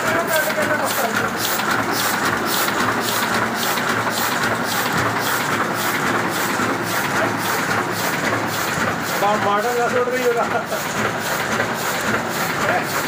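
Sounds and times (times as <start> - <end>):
printing press clattering: 0.0 - 13.0.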